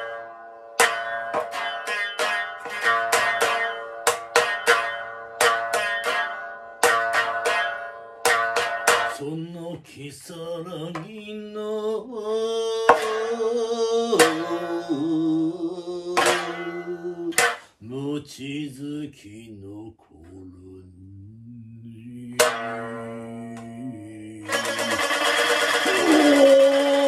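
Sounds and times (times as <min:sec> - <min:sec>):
chanted vocal line: 0:12.1 - 0:17.4
biwa strokes with plectrum: 0:24.4 - 0:27.0.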